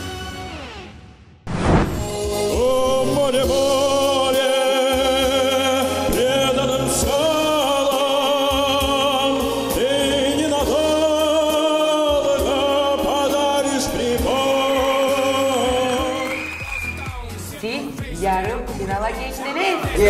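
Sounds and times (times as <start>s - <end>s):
man singing with vibrato: 2.1s - 16.3s.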